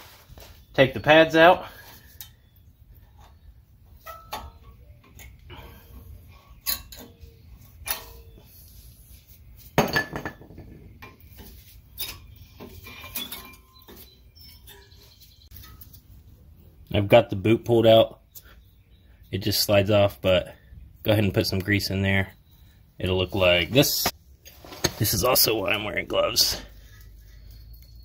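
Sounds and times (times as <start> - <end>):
metal brake pads clinking and scraping: 4.0 - 5.8, 6.4 - 8.5, 11.0 - 16.0.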